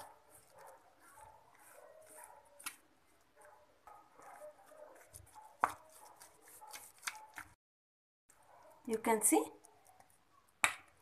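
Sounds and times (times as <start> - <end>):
hand squelching batter: 0.0 - 7.6.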